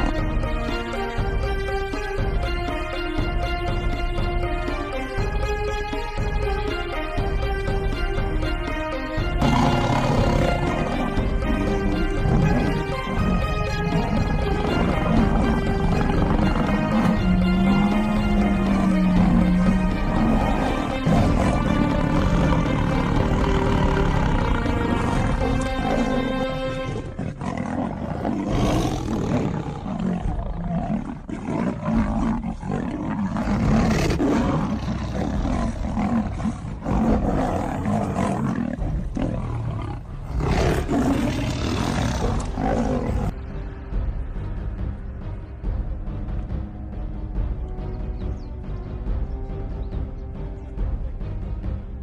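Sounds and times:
dramatic soundtrack music: 0:00.0 - 0:52.0
big cats growling and roaring: 0:09.2 - 0:43.4.

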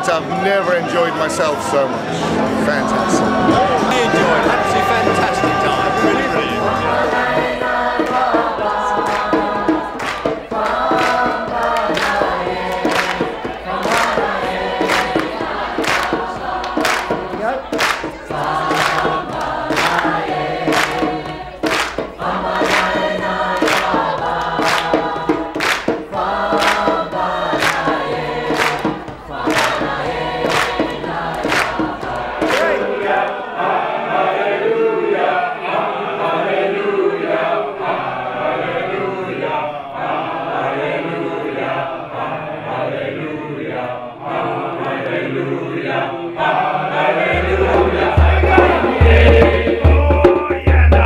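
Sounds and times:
group singing together: 0:00.0 - 0:51.0
hands clapping in time: 0:03.1 - 0:33.4.

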